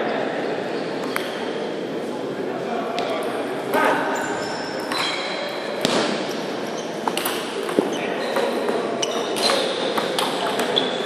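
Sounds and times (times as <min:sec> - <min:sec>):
shoes squeaking on floor: 0:04.1 - 0:05.6, 0:06.7 - 0:11.0.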